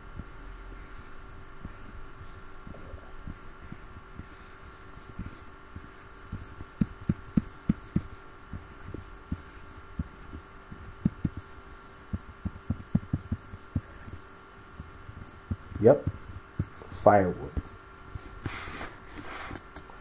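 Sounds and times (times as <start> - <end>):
faint steady hum: 0.0 - 20.0
pen tapping on drawing tablet: 5.2 - 11.5, 12.1 - 14.2.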